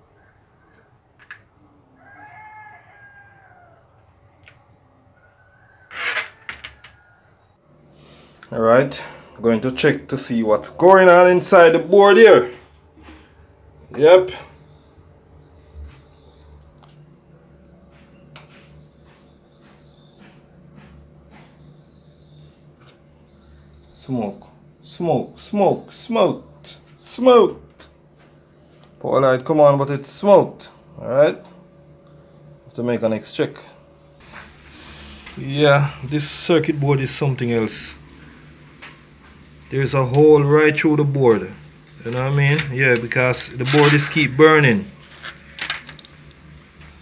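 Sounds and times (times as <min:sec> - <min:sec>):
small bird chirping: 0:00.0 - 0:08.1, 0:17.9 - 0:24.0, 0:31.5 - 0:32.5
low steady hum: 0:00.0 - 0:47.0
bird crowing call: 0:00.2 - 0:07.6.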